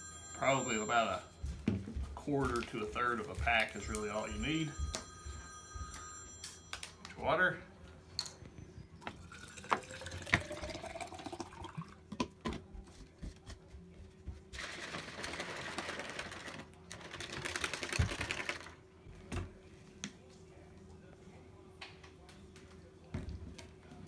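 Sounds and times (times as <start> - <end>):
water pouring into plastic cup: 9.2 - 12.0.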